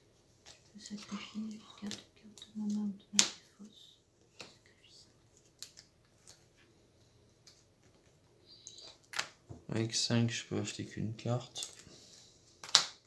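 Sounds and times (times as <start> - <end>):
playing cards clicking on table: 12.6 - 13.0.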